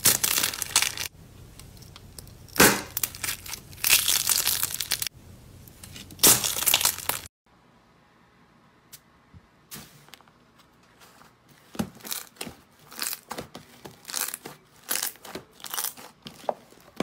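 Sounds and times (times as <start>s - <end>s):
eggshells crunching: 2.9s - 5.1s, 6.2s - 7.3s, 12.0s - 16.9s.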